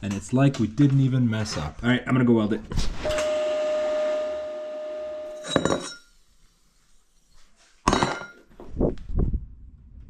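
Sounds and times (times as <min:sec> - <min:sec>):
ringing metal clang: 0:03.1 - 0:06.1.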